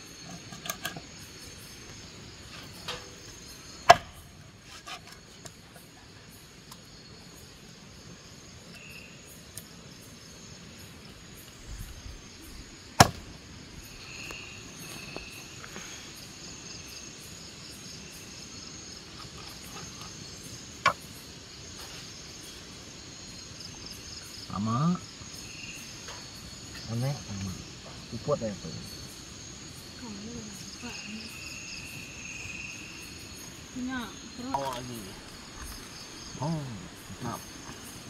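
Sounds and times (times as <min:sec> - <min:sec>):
crickets chirring: 0:00.0 - 0:38.0
machete chopping on wood: 0:03.9 - 0:04.2, 0:13.0 - 0:13.3.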